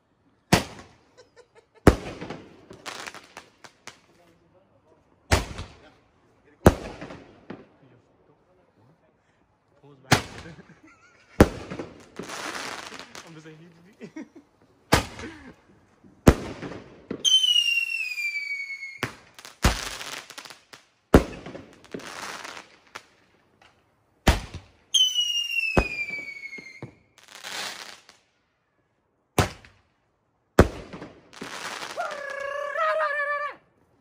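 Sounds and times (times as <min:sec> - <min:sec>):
firework bangs: 0:00.5 - 0:01.1, 0:01.8 - 0:04.1, 0:05.3 - 0:05.9, 0:06.6 - 0:07.8, 0:10.1 - 0:13.5, 0:14.9 - 0:15.4, 0:16.2 - 0:23.2, 0:24.2 - 0:28.2, 0:29.4 - 0:29.8, 0:30.6 - 0:32.5
firework hiss: 0:11.6 - 0:13.5, 0:24.3 - 0:28.2
falling firework whistle: 0:17.2 - 0:19.1, 0:24.9 - 0:27.1.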